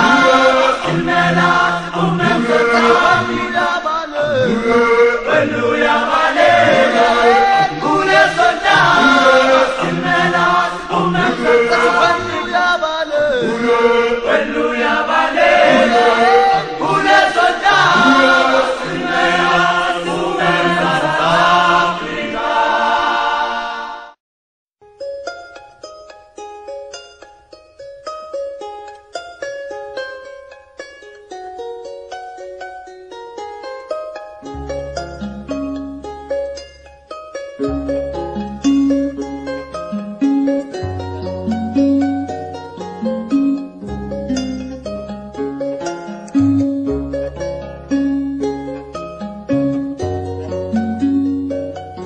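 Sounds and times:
group choral chanting: 0:00.0 - 0:24.2.

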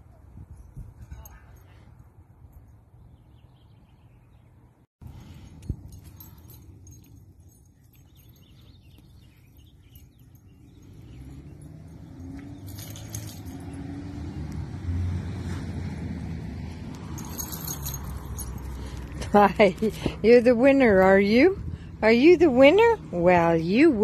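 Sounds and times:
dog collar tags jingling: 0:05.1 - 0:14.2, 0:17.0 - 0:20.1
vehicle rumbling past: 0:09.8 - 0:20.8.

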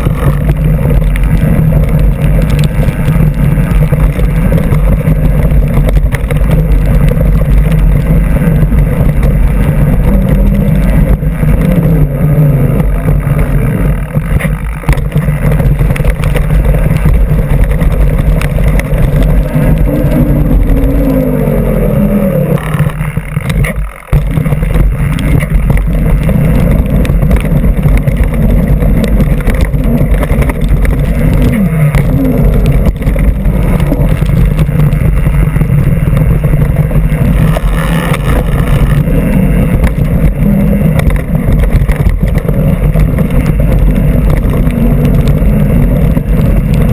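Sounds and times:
wind buffeting: 0:00.0 - 0:23.6
bike tyre and trail rattle: 0:00.0 - 0:46.9.

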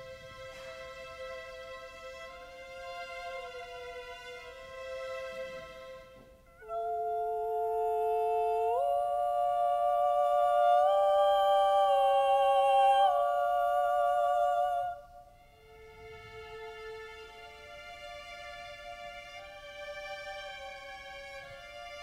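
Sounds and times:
women singing in harmony: 0:06.6 - 0:15.4.

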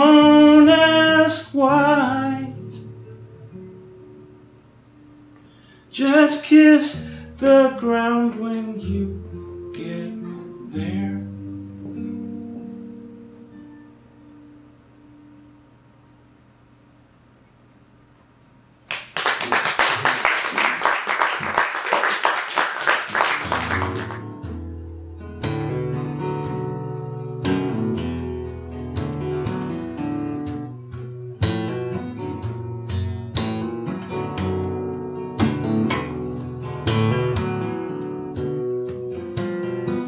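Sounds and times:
acoustic guitar playing: 0:00.0 - 0:16.0, 0:22.7 - 0:40.0
applause: 0:18.9 - 0:24.3.

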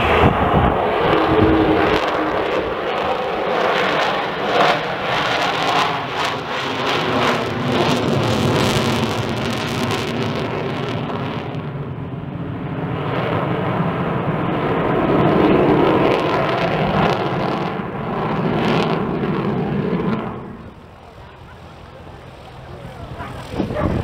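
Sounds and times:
jet bomber roaring past: 0:00.0 - 0:24.0.

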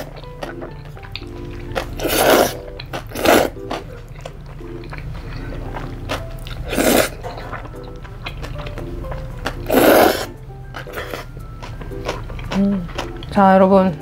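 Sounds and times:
chewing and mouth sounds: 0:00.0 - 0:13.6
person slurping noodles: 0:02.0 - 0:03.6, 0:06.6 - 0:07.2, 0:09.7 - 0:11.3.

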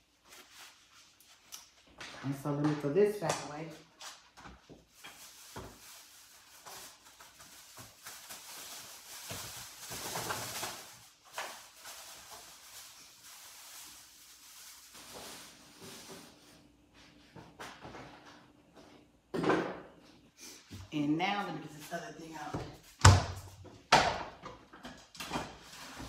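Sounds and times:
rustling: 0:04.0 - 0:16.6
kitchen knocks and clicks: 0:23.0 - 0:25.6.

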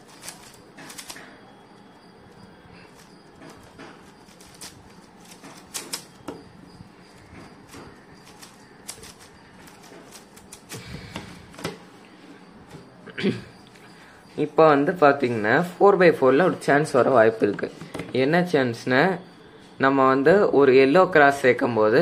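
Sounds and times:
speed cube layers clicking: 0:00.0 - 0:01.2, 0:04.2 - 0:06.2, 0:08.2 - 0:10.8.

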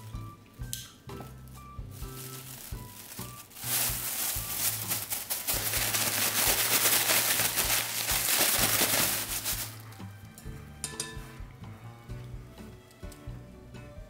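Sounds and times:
plastic bag crinkling and rustling: 0:01.9 - 0:09.8.

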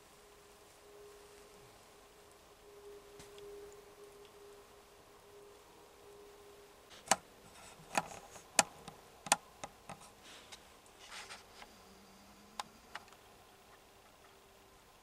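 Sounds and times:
sharp handling clicks and knocks: 0:07.9 - 0:10.0
brief rustle: 0:09.9 - 0:11.7.

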